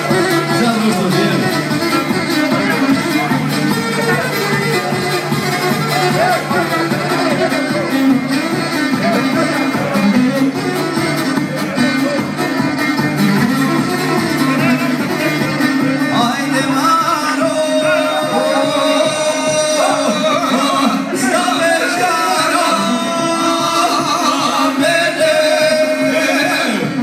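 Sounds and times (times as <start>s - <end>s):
plucked string instrument: 0.0s - 27.0s
men singing with vibrato: 14.4s - 27.0s.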